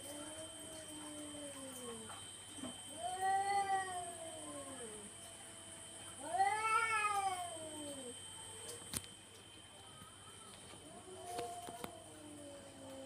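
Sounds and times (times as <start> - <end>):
cats yowling: 0.0 - 2.2, 2.9 - 5.2, 6.2 - 8.2, 10.8 - 13.0.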